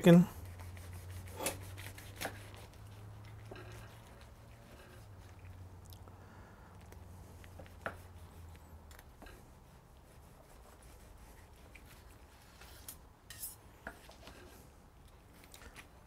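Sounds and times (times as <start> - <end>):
knife slicing through chicken: 0.6 - 3.2.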